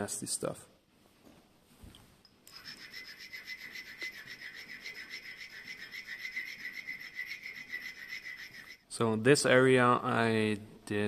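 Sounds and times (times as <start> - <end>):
brass rod scraping on stone: 2.5 - 8.9.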